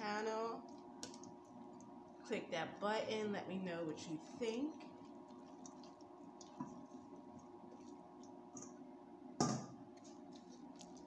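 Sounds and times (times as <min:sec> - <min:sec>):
steady hum: 0:00.0 - 0:11.0
utensil clicking in a pot: 0:00.6 - 0:02.0.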